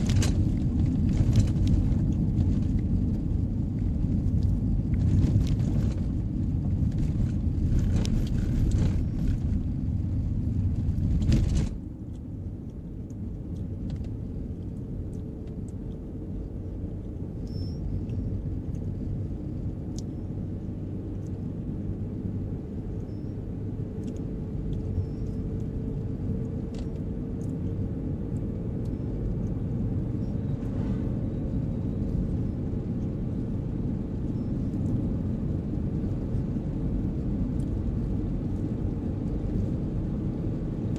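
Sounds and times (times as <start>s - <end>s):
tyres rumbling on gravel: 0.0s - 3.2s
road rumble on pavement: 0.0s - 40.9s.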